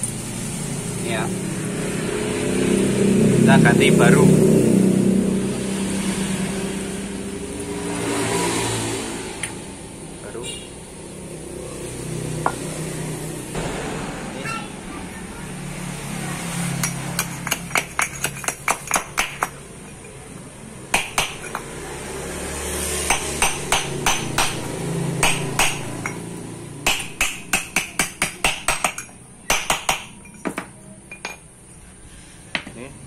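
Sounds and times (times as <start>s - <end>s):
hammer striking steel drift: 13.6s - 15.7s.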